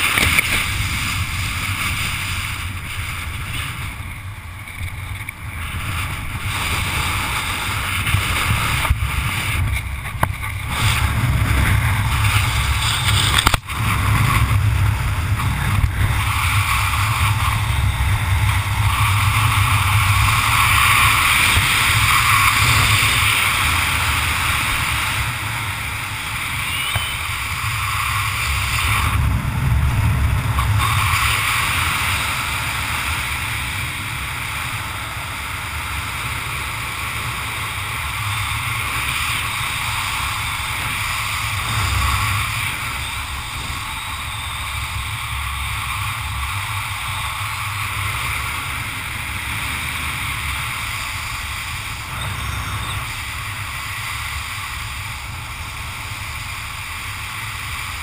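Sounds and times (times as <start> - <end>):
wind buffeting microphone: 0.0 - 26.6, 27.2 - 58.0.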